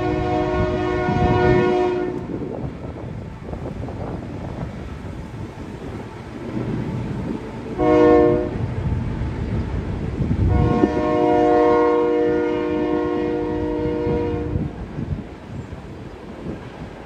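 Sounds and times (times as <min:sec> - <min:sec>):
locomotive air horn: 0:00.0 - 0:02.4, 0:07.7 - 0:08.7, 0:10.4 - 0:14.8
freight train rumbling past: 0:00.0 - 0:17.0.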